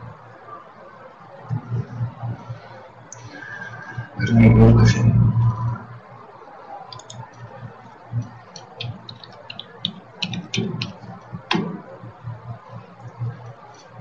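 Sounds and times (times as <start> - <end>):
faint low hum: 0.0 - 14.0
computer mouse clicks: 6.9 - 14.0.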